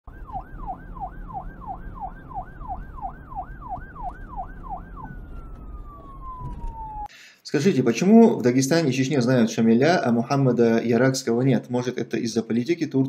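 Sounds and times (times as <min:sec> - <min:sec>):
siren yelping: 0:00.1 - 0:07.1
low rumble: 0:00.2 - 0:07.1.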